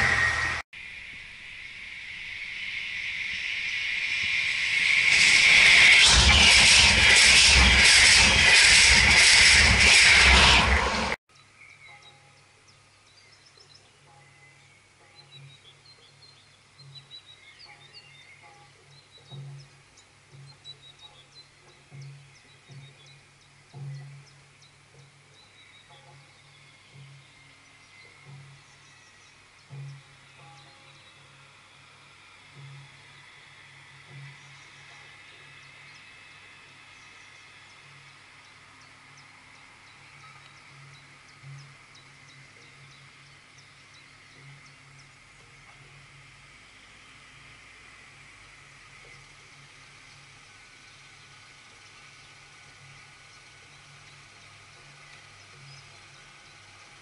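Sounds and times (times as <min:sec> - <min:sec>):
small birds chirping: 0:11.3 - 0:33.4, 0:34.0 - 0:46.2, 0:49.0 - 0:57.0
faint steady hum: 0:11.3 - 0:57.0.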